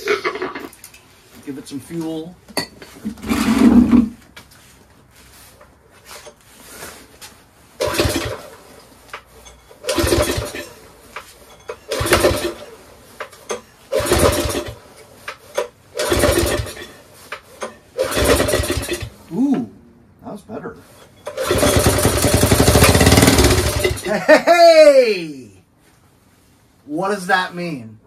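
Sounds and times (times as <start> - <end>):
small engine pull-started and firing: 7.8 - 8.7, 9.8 - 10.8, 11.7 - 19.2, 21.2 - 24.1.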